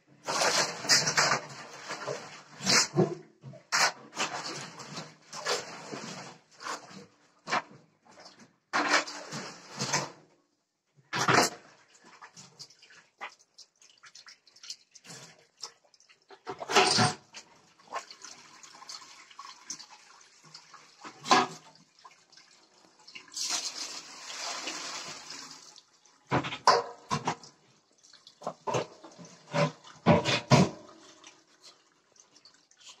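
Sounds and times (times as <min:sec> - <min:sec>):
knocks and clatter of drum: 0:28.5 - 0:31.0.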